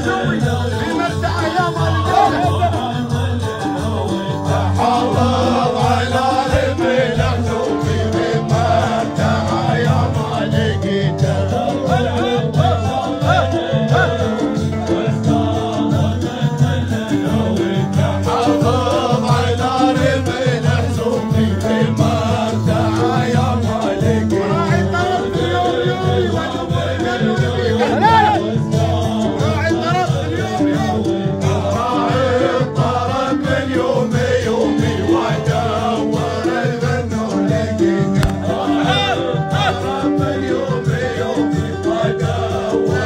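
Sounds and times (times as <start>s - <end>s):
men's voices joining in: 0.0s - 15.9s, 16.7s - 32.7s, 37.9s - 40.7s
steady repeating low beat: 0.0s - 41.4s
man singing into microphone: 0.0s - 43.0s.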